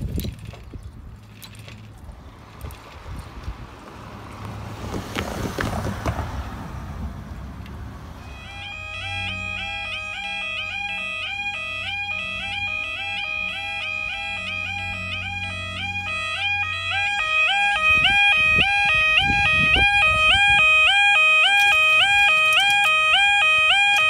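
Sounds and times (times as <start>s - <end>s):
level crossing alarm warbling: 8.2s - 24.0s.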